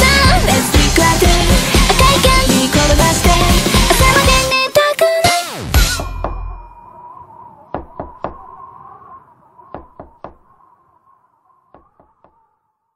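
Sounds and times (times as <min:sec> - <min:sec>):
sharp knocks: 0:07.7 - 0:08.6, 0:09.7 - 0:10.6.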